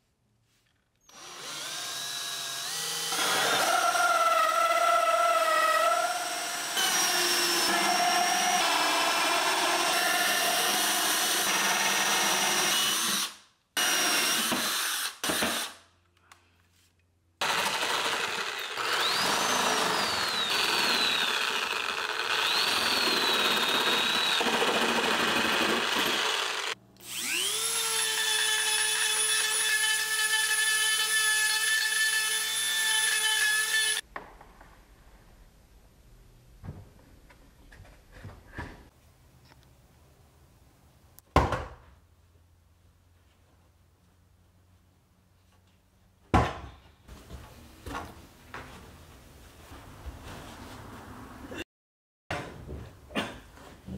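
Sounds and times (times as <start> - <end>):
power drill cutting fibreboard: 1.1 - 15.8, 17.4 - 34.0.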